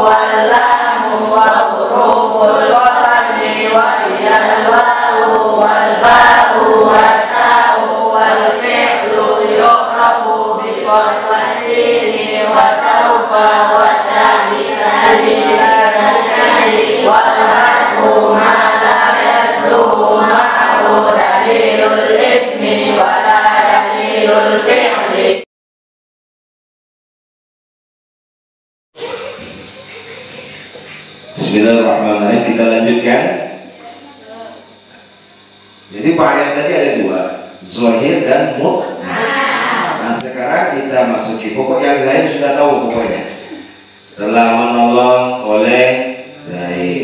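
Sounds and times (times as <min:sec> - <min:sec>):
voices chanting in unison: 0:00.0 - 0:25.5, 0:29.0 - 0:35.0, 0:35.9 - 0:47.0
person leading over a microphone: 0:29.0 - 0:34.1.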